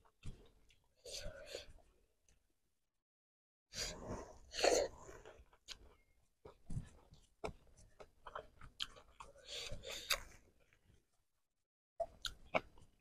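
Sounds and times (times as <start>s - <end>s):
person chewing food: 4.3s - 11.0s, 12.0s - 13.0s.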